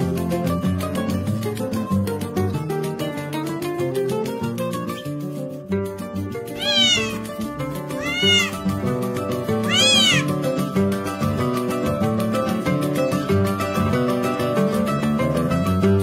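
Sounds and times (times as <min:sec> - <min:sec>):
cat meowing: 0:06.6 - 0:07.3, 0:07.9 - 0:08.6, 0:09.6 - 0:10.3.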